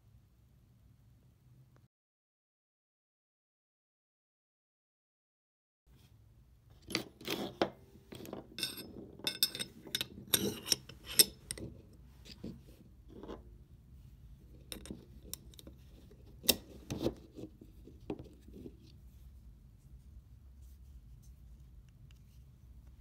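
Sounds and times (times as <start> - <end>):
pistol parts clicking and scraping: 6.8 - 13.4, 14.5 - 18.8.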